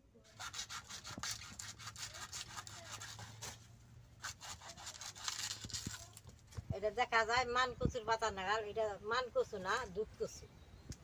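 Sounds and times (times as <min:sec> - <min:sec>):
knife scraping and cutting stalk: 0:00.3 - 0:06.2.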